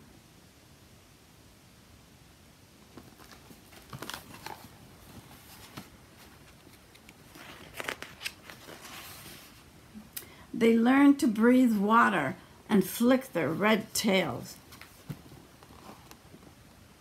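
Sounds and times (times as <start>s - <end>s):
book page rustles and clicks: 2.8s - 9.6s, 14.7s - 16.6s.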